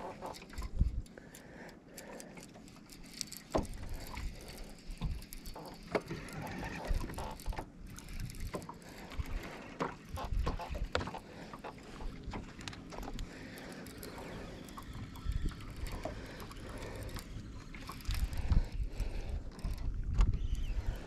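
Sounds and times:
fishing reel clicks and knocks: 0.0 - 21.0
water lapping against boat hull: 0.0 - 21.0
wind buffeting microphone: 14.8 - 17.0, 17.8 - 21.0.

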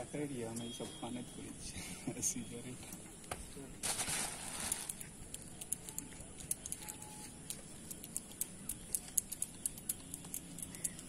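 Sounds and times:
sharp ticks: 4.6 - 11.0.

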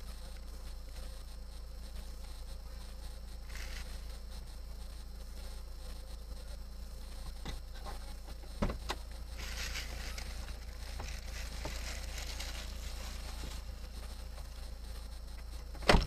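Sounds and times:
car engine hum: 0.0 - 16.0
hiss: 0.0 - 16.0.

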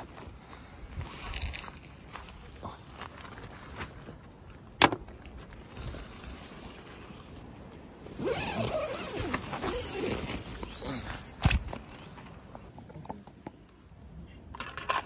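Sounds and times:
tent door zip being pulled: 8.1 - 11.6.

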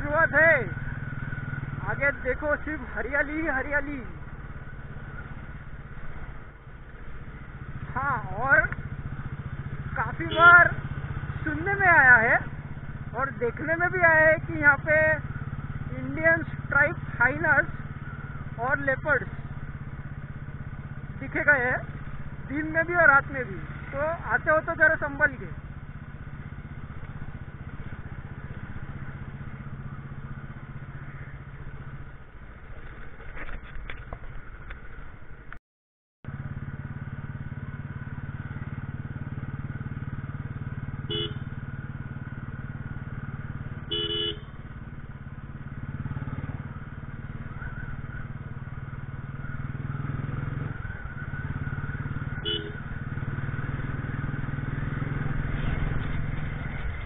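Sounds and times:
motorcycle engine running: 0.0 - 35.6, 36.2 - 57.0
vehicle horn beeps: 10.2 - 10.7, 41.0 - 41.6, 43.8 - 44.6, 52.4 - 52.9.

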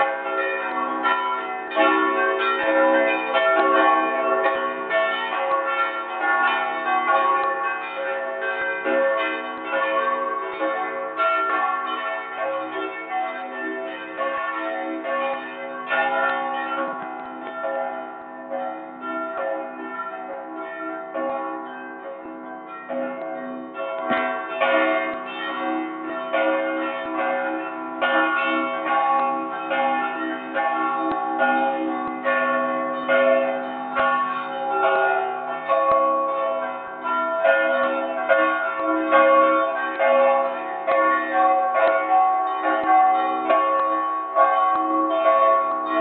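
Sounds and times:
church bells pealing: 0.0 - 46.0.

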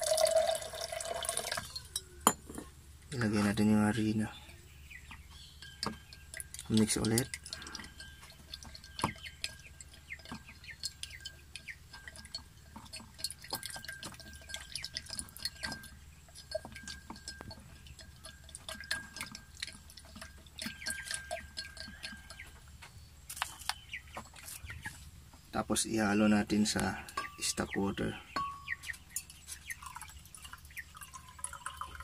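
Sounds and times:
spoon tapping against glass: 5.4 - 22.6.

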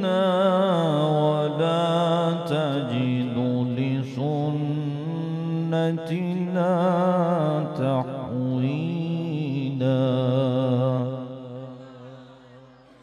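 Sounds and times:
man reciting melodically: 0.0 - 12.6.

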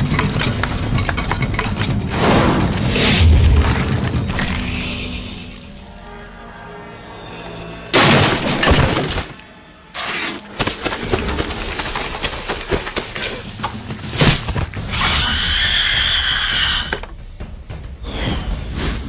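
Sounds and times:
crackling clattering debris: 0.0 - 5.7, 7.9 - 14.9
loud crash of shattering: 8.0 - 9.3.

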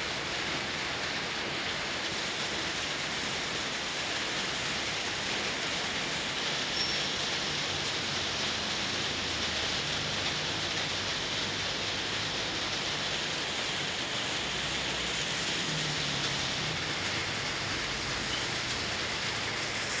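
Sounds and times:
heavy rain on pavement: 0.0 - 20.0
passing vehicles hum: 7.6 - 20.0.

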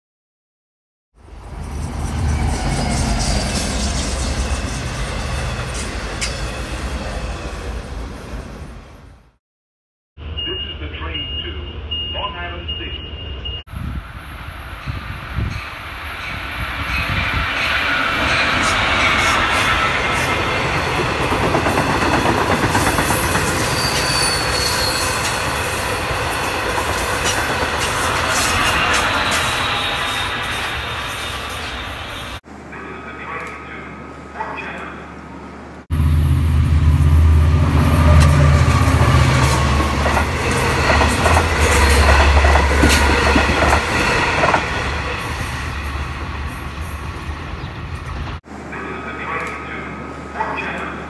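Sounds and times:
wheels rumbling on rail: 1.2 - 9.2, 13.7 - 32.4, 35.6 - 48.7
train passing at speed: 1.2 - 9.4, 13.5 - 32.4, 35.2 - 51.0
high wheel squeal: 1.6 - 7.6, 23.2 - 32.4.

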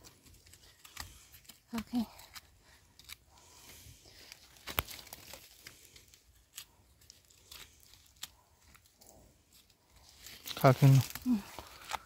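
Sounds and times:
twigs snapping: 0.0 - 12.0
dry leaves crackling: 4.2 - 6.1, 10.0 - 12.0.

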